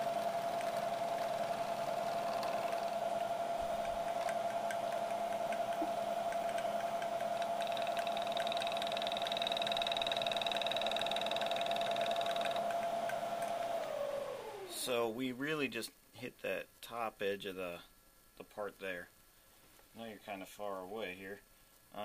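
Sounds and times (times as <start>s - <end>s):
milling machine whine: 0.0s - 15.0s.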